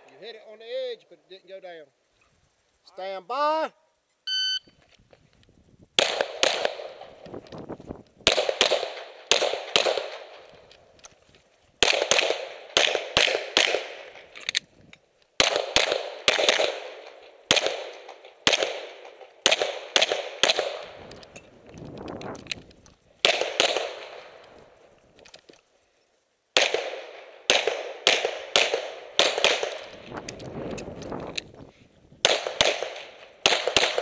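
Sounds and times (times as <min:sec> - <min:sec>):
pistol shots with short echo: 0:06.0 - 0:07.2, 0:08.2 - 0:10.5, 0:15.4 - 0:21.2, 0:23.2 - 0:24.4, 0:26.6 - 0:30.1, 0:32.2 - 0:34.0.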